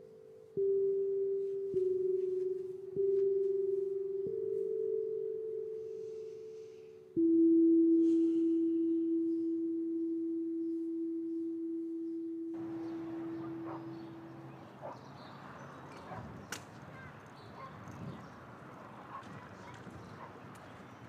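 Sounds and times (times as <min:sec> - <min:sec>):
bell-like music tones: 0:00.0 - 0:15.8
street noise: 0:12.6 - 0:21.0.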